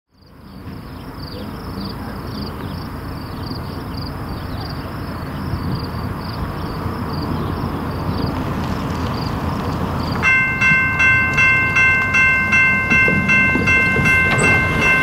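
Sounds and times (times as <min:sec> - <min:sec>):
insect chirping: 0:00.2 - 0:08.4.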